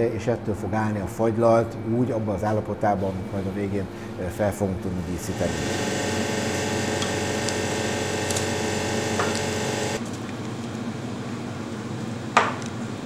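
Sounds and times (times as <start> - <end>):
ice cream machine humming: 5.0 - 13.0.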